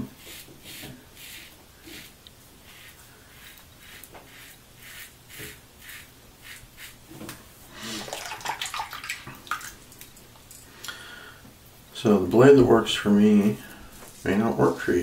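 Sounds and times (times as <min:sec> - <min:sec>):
razor scraping stubble: 0:00.2 - 0:07.1
water splashing: 0:07.9 - 0:09.9.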